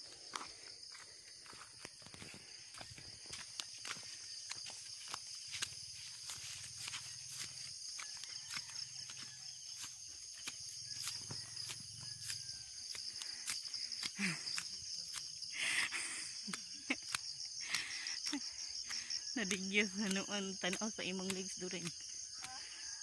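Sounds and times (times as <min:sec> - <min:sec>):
footsteps crunching on trail: 0:00.0 - 0:15.5
crickets chirping: 0:00.0 - 0:23.0.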